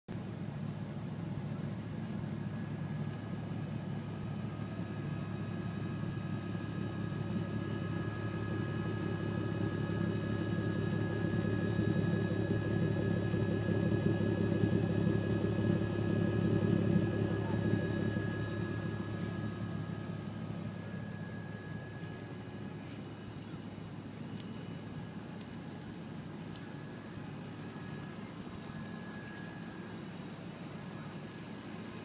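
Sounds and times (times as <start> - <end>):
car engine idling: 0.2 - 32.0.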